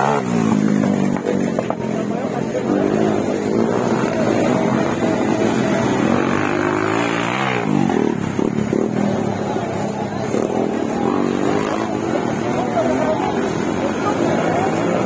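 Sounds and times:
dirt bike engine revving: 0.0 - 15.0
dirt bike engines running: 0.0 - 15.0.

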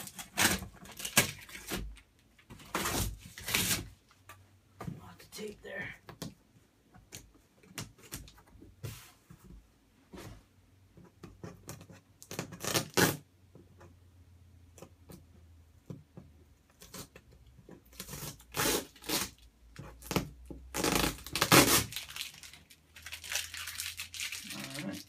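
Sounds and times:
packing tape tearing: 0.0 - 2.0, 2.6 - 3.9, 12.2 - 13.2, 18.0 - 19.4, 20.0 - 25.0.

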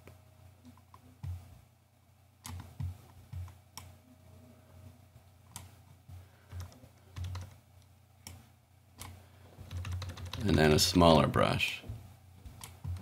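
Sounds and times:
faint low hum: 0.0 - 13.0
keyboard and mouse clicks: 2.4 - 3.9, 5.5 - 5.8, 6.5 - 7.6, 9.0 - 10.6, 12.5 - 13.0.

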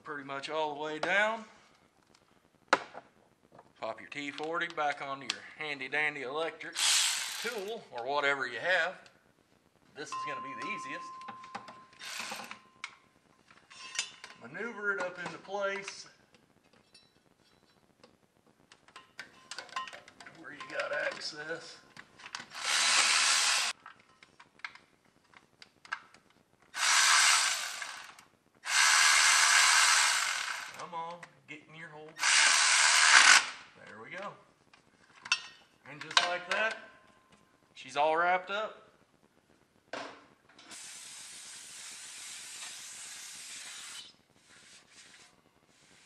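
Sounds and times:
electric driver whirring: 22.5 - 23.7, 26.8 - 30.8, 32.2 - 33.5
aerosol can spraying: 40.7 - 45.2.

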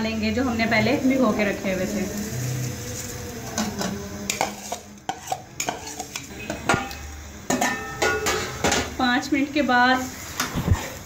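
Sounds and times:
spoon scraping metal pot: 3.4 - 8.7.

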